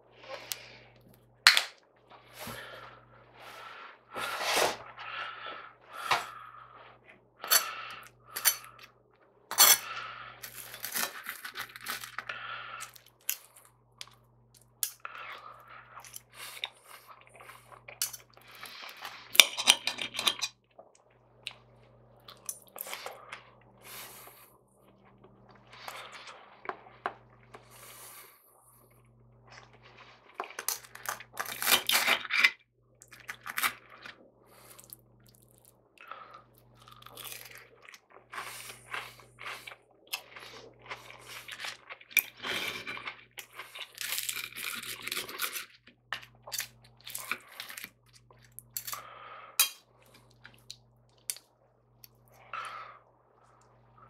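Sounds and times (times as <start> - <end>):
crunchy chewing: 36.3 - 49.1.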